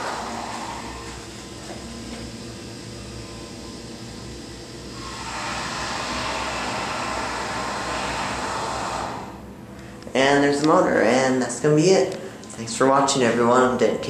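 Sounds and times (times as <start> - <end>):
elevator pump motor humming: 0.0 - 14.0.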